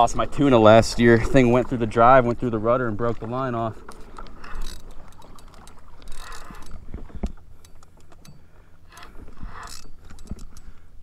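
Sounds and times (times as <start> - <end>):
light clicks from rod and reel: 3.0 - 11.0
fishing reel gears whirring: 3.8 - 10.8.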